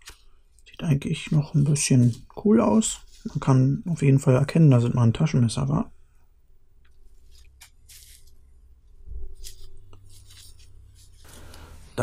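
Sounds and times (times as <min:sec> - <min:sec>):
rubbing rustle: 0:07.1 - 0:08.4, 0:09.3 - 0:12.0.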